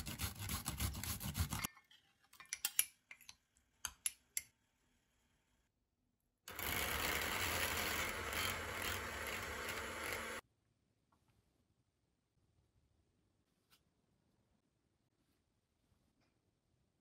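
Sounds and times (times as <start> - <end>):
electric hand mixer whipping cream: 6.5 - 10.4.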